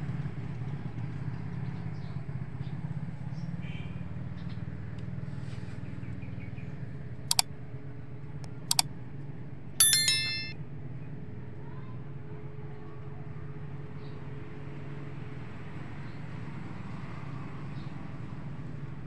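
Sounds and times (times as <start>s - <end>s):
bright bell ding: 9.8s - 10.6s.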